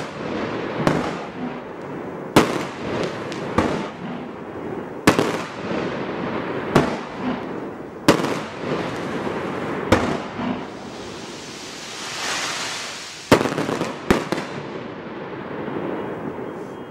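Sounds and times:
firework bangs: 0.0 - 16.6
firework crackling: 0.0 - 16.7
firework hiss: 8.3 - 14.3.

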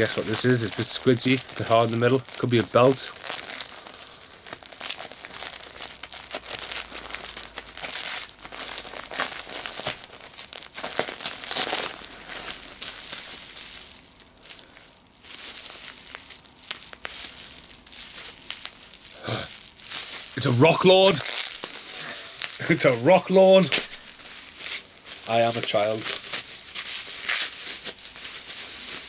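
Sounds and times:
wrapping paper crinkling and tearing: 0.0 - 29.0.

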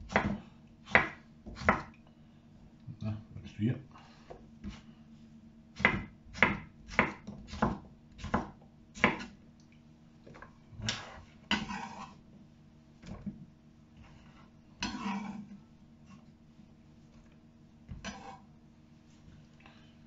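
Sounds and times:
knife chopping on cutting board: 0.0 - 1.9, 5.8 - 9.3
knife scraping cutting board: 10.8 - 12.2, 14.0 - 16.2, 17.9 - 18.5.

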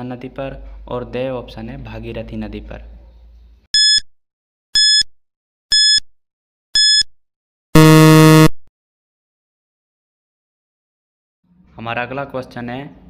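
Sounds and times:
short high-pitched beeps: 3.8 - 4.1, 4.8 - 5.1, 5.7 - 6.1, 6.8 - 7.1, 7.8 - 8.7
long low buzz: 7.8 - 8.6.

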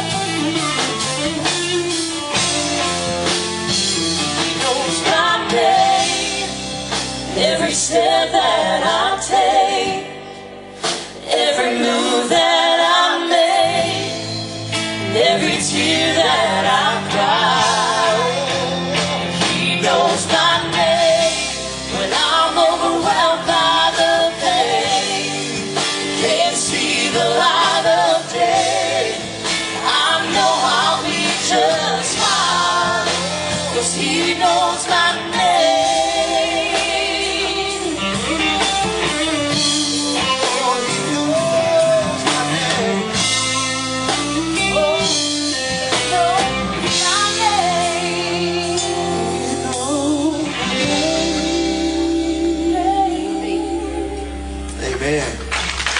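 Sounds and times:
drums: 0.0 - 55.9
electric guitar: 0.0 - 55.9
live band playing: 0.0 - 55.9
person singing: 29.9 - 43.2, 44.2 - 55.2.

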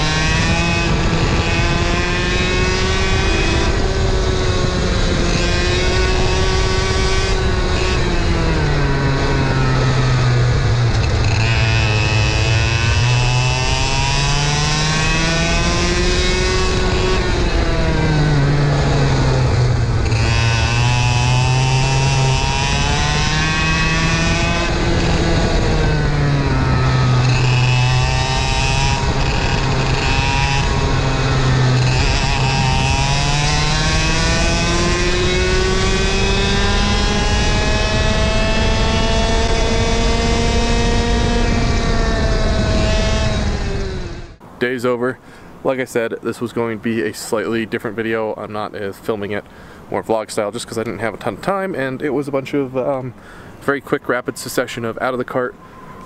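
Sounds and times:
two-stroke kart engine revving: 0.0 - 44.4.

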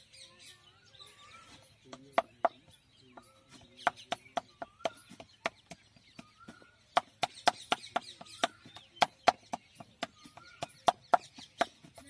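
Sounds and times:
paddle slapping clay pot: 1.9 - 12.0.

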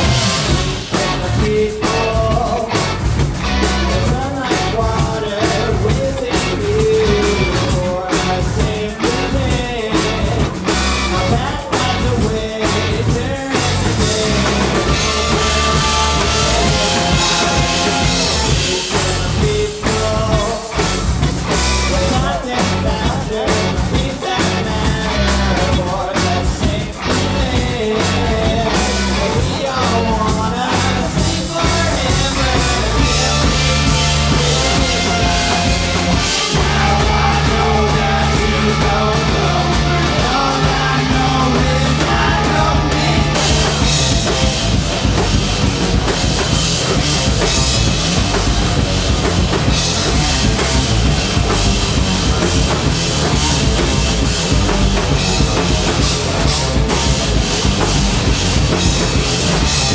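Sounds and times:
man singing: 0.0 - 44.8
bass guitar: 0.0 - 59.9
drum kit: 0.0 - 59.9
electric guitar: 0.0 - 59.9.

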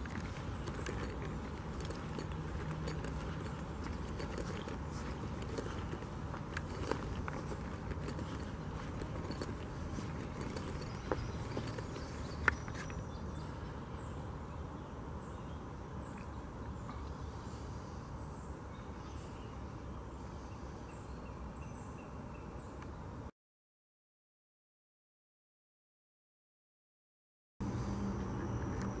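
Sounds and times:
footsteps on dirt trail: 0.0 - 13.1.

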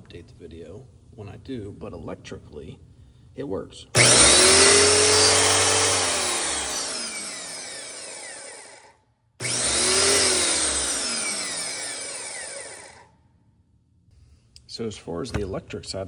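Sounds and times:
electric motor winding down: 4.0 - 13.1.

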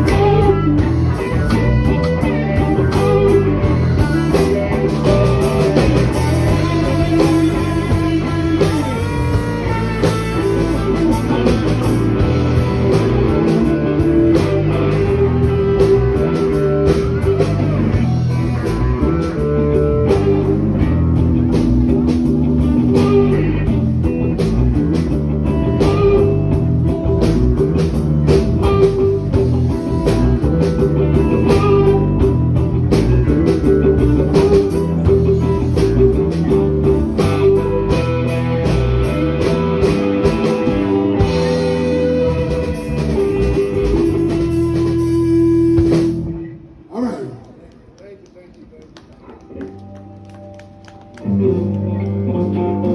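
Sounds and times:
bass guitar: 0.0 - 47.9, 48.9 - 52.9
drums: 0.0 - 48.0, 48.9 - 52.9
electric lead guitar: 0.0 - 48.0, 48.7 - 52.9.

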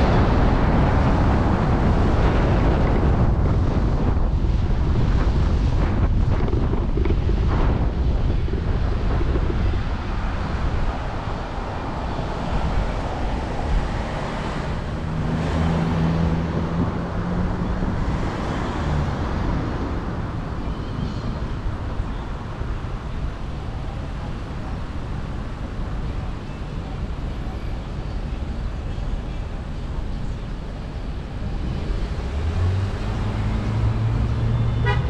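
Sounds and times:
wind buffeting microphone: 0.0 - 25.6
road and traffic rumble: 0.0 - 35.0.

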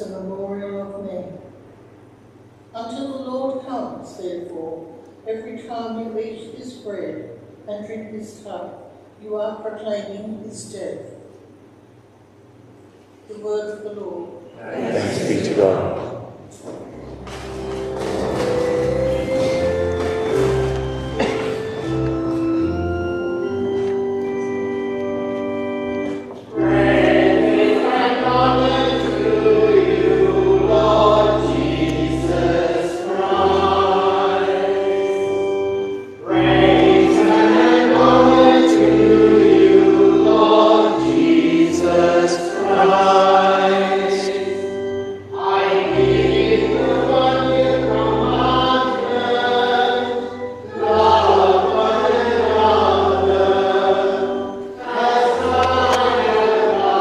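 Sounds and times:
sustained organ notes: 11.5 - 57.0
voices singing church music: 14.6 - 16.2, 17.0 - 57.0.

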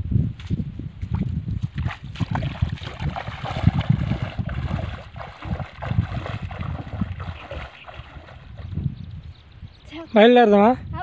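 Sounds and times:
wind buffeting microphone: 0.0 - 11.0
footsteps splashing through water: 0.4 - 8.8.

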